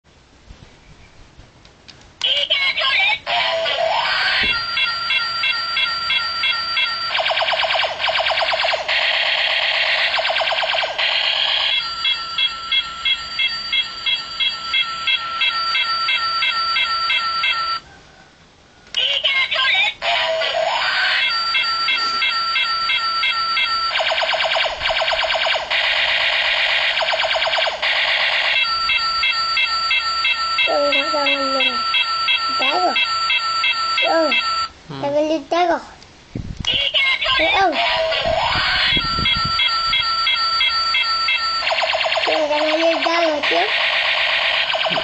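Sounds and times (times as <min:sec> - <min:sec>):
toy gun beeping: 0:02.2 - 0:17.8, 0:19.0 - 0:34.7, 0:36.7 - 0:45.0
falling laser zaps: 0:24.0 - 0:28.6, 0:41.7 - 0:45.0.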